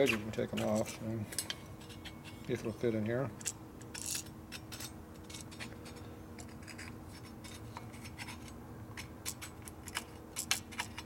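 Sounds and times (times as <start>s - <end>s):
hand tool scraping metal: 0.0s - 2.8s
faint steady hum: 0.0s - 11.0s.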